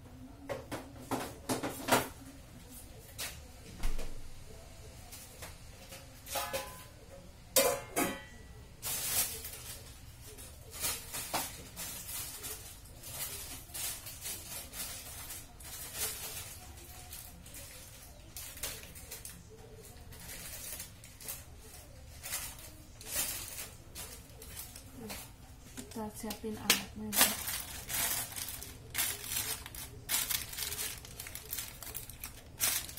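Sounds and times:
kitchenware clattering: 6.2 - 7.0, 7.6 - 9.4.

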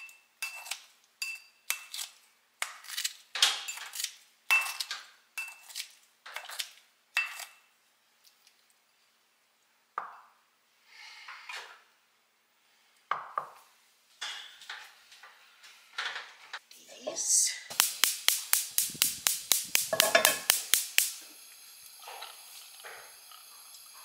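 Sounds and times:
scissors snipping: 17.7 - 21.1
blades clinking against bowl: 19.8 - 20.8.

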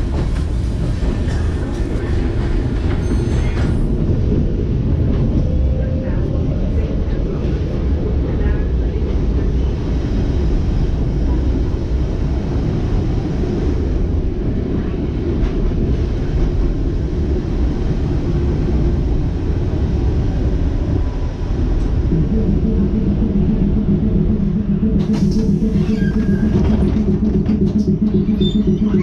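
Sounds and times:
tram wheels rumbling on rails: 0.0 - 29.0
steady low hum: 21.9 - 29.0.

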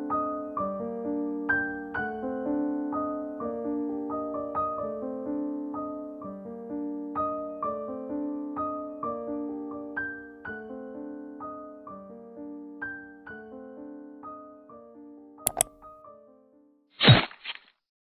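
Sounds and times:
piano music: 0.0 - 16.6.

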